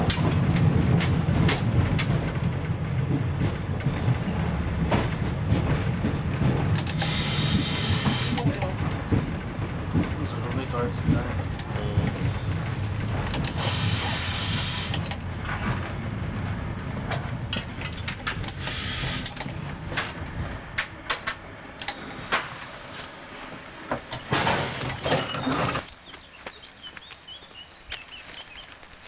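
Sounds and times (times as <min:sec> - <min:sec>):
diesel railbus rumble: 0:00.0 - 0:25.9
wheels clicking on rails: 0:00.0 - 0:27.3
hiss: 0:07.0 - 0:08.4, 0:11.9 - 0:15.1, 0:18.6 - 0:19.3.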